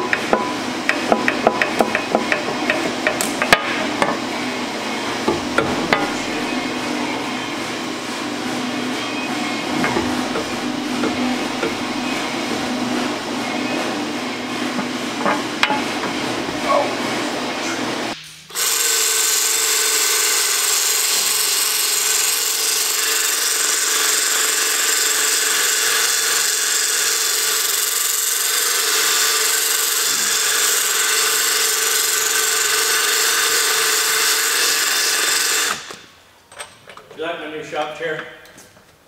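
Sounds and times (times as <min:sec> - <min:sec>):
power drill running: 0:09.5 - 0:14.5, 0:18.5 - 0:36.1.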